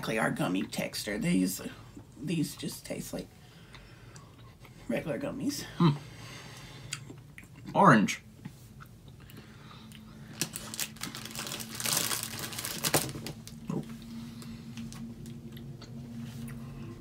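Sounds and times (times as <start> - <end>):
plastic packet crinkling: 10.2 - 14.0.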